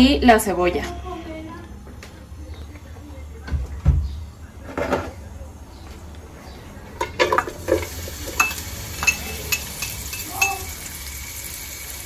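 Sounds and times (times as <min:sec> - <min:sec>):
oil sizzling: 0:07.0 - 0:12.0
knife clinking against bowl: 0:08.4 - 0:10.6.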